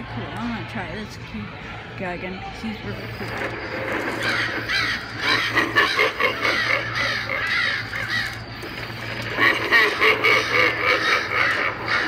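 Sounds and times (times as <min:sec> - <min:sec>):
steady low hum: 0:00.0 - 0:12.0
raspy crow-like cawing calls: 0:03.8 - 0:12.0.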